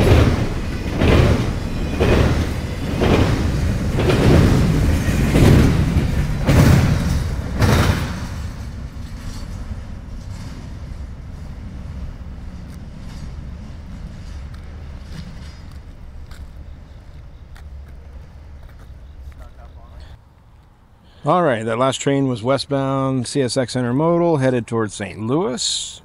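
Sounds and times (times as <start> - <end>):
train wheels banging over crossing: 0.0 - 19.3
low train rumble: 0.0 - 26.0.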